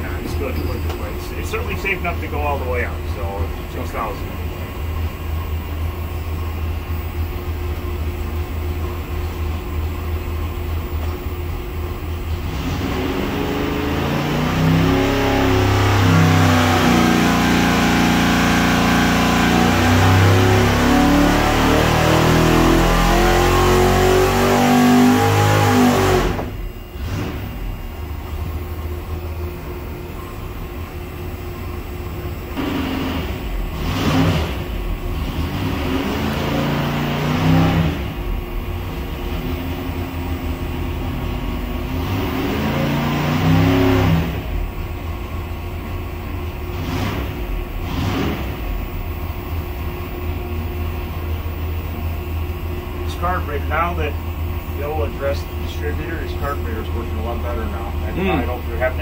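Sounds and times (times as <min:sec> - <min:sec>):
race engine revving: 0:12.3 - 0:27.8, 0:32.5 - 0:44.9, 0:46.0 - 0:49.3, 0:52.8 - 0:59.0.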